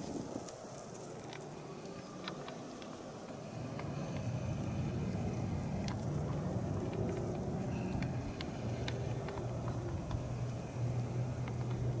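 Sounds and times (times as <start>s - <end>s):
faint ticks: 0.4s - 12.0s
vehicle engine running: 3.3s - 12.0s.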